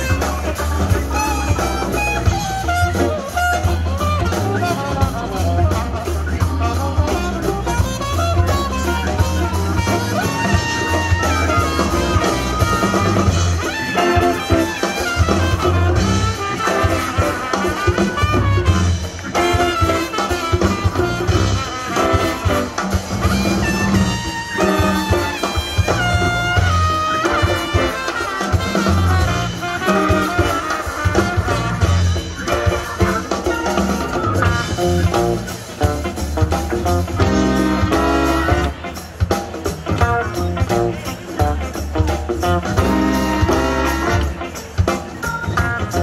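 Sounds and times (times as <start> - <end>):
live jazz band playing: 0.0 - 46.0
trumpet: 0.0 - 46.0
horns holding long high notes: 7.1 - 35.0, 42.7 - 44.5.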